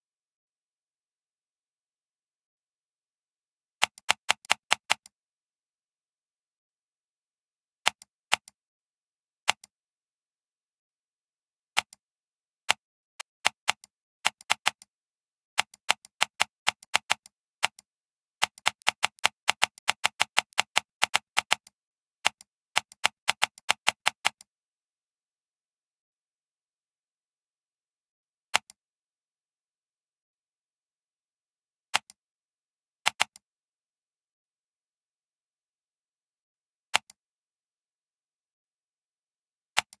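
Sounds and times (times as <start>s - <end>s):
mouse scroll wheel clicking: 3.8s - 5.1s, 12.7s - 14.9s, 15.6s - 24.5s, 33.1s - 33.4s, 36.9s - 37.2s, 39.8s - 40.0s.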